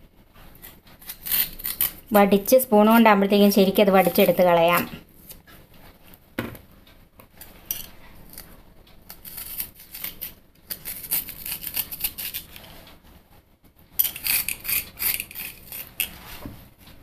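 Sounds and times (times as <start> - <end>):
spoon scraping vegetable: 0.4 - 5.4, 9.1 - 13.0, 14.0 - 16.4.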